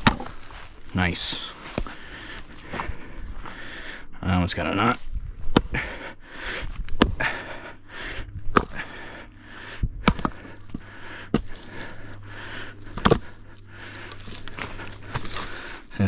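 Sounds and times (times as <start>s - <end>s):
axe knocks splitting firewood: 0.0s - 0.4s, 13.0s - 13.4s
low steady hum: 0.0s - 16.0s
heavy breathing: 0.2s - 16.0s.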